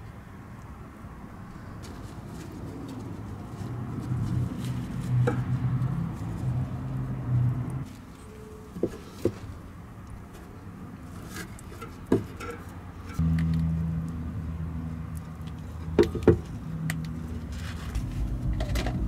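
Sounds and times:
low hum: 0:13.2 - 0:19.0.

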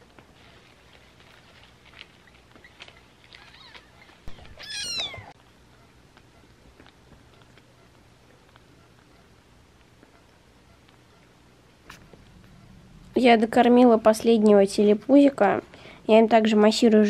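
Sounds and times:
small clicks and squeaks: 0:01.3 - 0:05.4
kitten mewing: 0:03.5 - 0:05.4.

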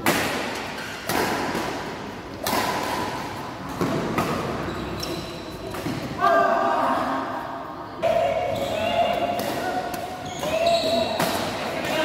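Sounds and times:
racket hitting shuttlecock: 0:00.0 - 0:06.2, 0:09.1 - 0:12.0.

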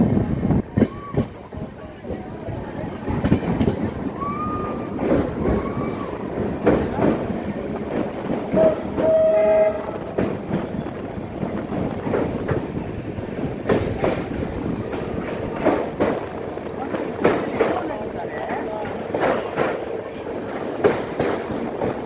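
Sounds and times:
train rumble: 0:00.0 - 0:22.0
train wheels clacking: 0:03.0 - 0:22.0
train horn blast: 0:08.5 - 0:10.0.

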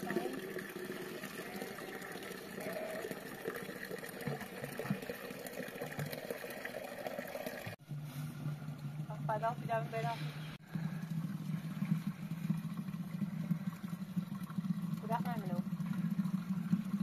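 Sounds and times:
water running and splashing: 0:00.0 - 0:07.8, 0:10.6 - 0:17.0.

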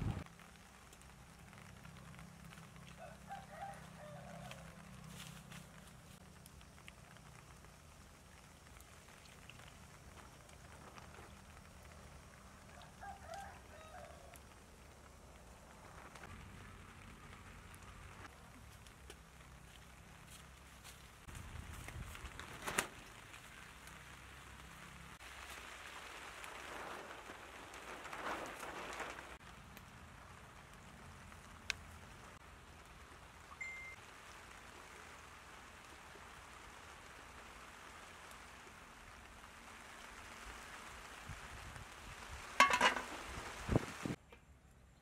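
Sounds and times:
water boiling in a pot: 0:00.1 - 0:22.2, 0:23.0 - 0:44.2
metal pot lid clattering: 0:42.6 - 0:43.1.

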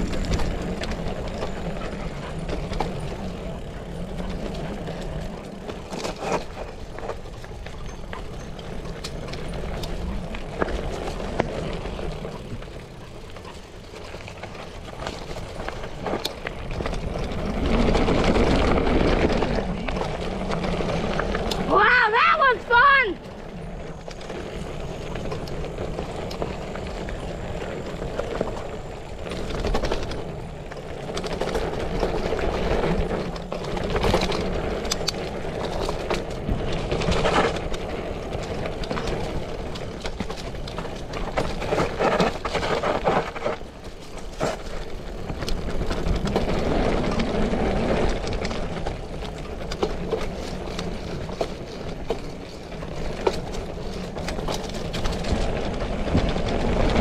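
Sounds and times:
bicycle tyres on dirt trail: 0:00.0 - 0:57.0
bike rattling over bumps: 0:00.0 - 0:57.0.

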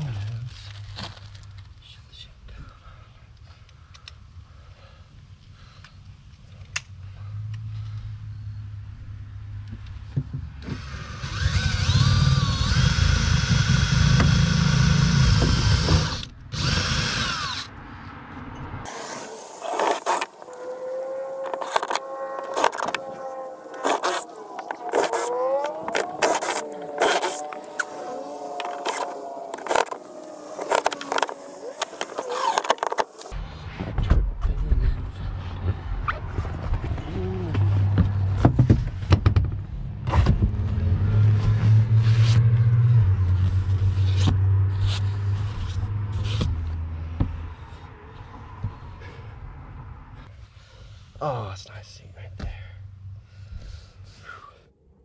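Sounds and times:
cordless drill driving screws: 0:10.8 - 0:17.7, 0:30.6 - 0:33.1
rattling and handling noises: 0:30.6 - 0:33.3.

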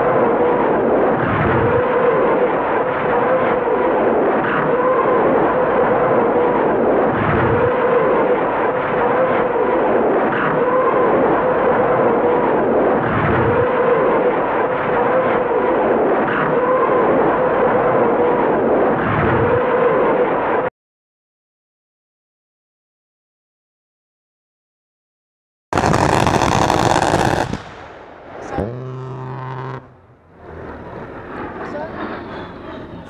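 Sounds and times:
rockets howling: 0:00.0 - 0:20.7, 0:25.7 - 0:33.0.

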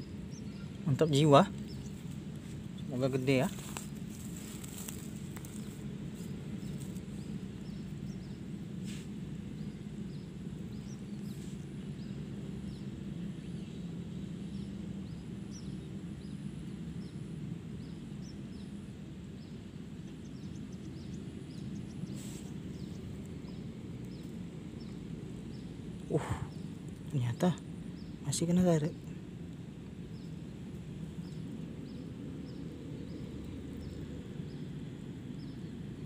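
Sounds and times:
low outdoor rumble: 0:00.0 - 0:36.0
soft rustles: 0:03.5 - 0:07.1.

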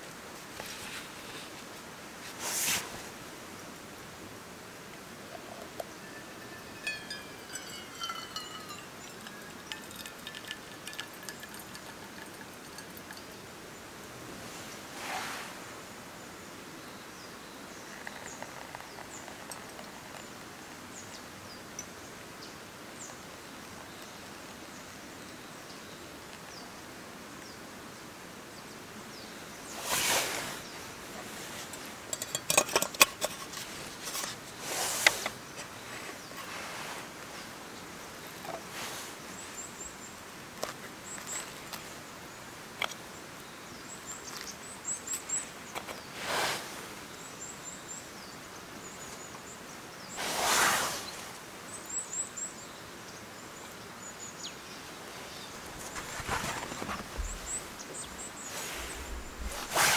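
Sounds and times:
rustles of handling: 0:00.4 - 0:03.2, 0:29.7 - 0:37.6, 0:38.2 - 0:39.6, 0:55.2 - 0:59.9
hot water trickling: 0:04.9 - 0:14.9, 0:17.8 - 0:20.9, 0:31.2 - 0:34.2.

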